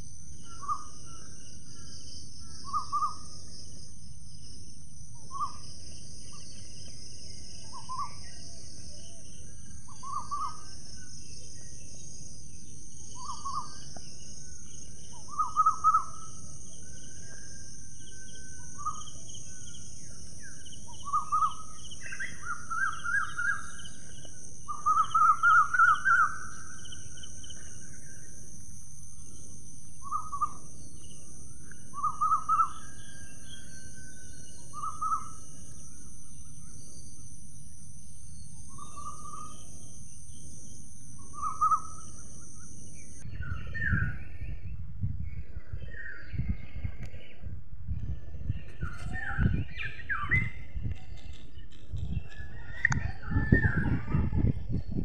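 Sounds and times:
birds calling: 0.0 - 3.8, 5.2 - 28.5, 29.2 - 37.2, 38.3 - 44.6.

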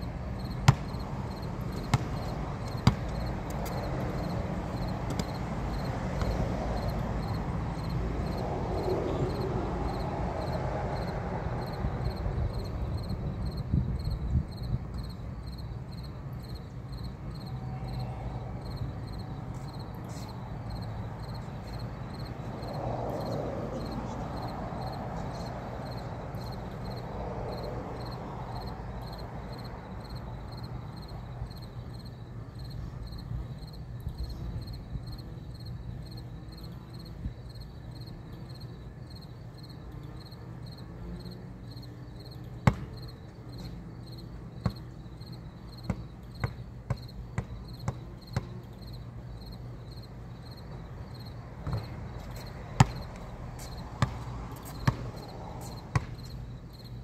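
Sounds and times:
insects chirping: 0.0 - 57.0
basketball bouncing on concrete: 0.6 - 5.4, 6.1 - 6.5, 42.6 - 43.0, 45.8 - 48.6, 51.6 - 56.4.

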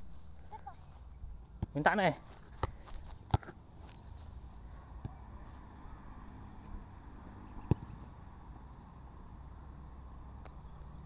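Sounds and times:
insects chirping: 0.0 - 1.6, 5.2 - 11.0
outdoor background noise: 0.0 - 11.0.

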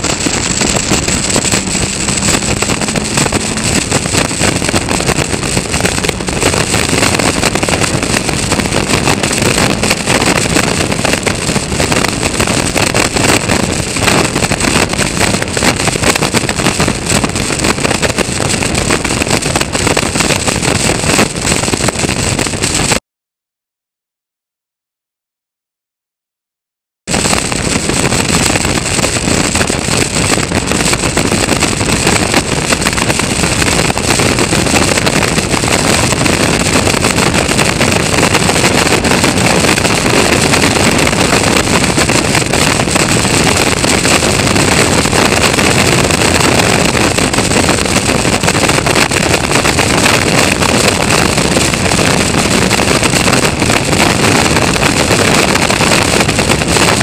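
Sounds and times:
race car engine running hard: 0.0 - 20.8
wind rush on microphone: 0.0 - 23.0, 27.1 - 57.0.

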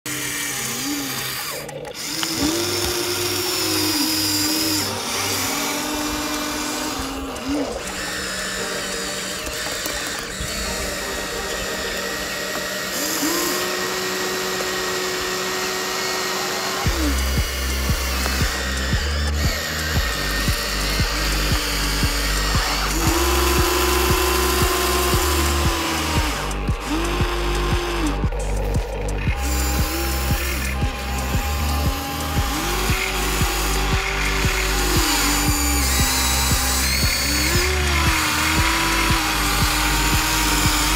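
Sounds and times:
toy electric motors whining: 0.0 - 40.9
background music with beat: 16.8 - 40.9.

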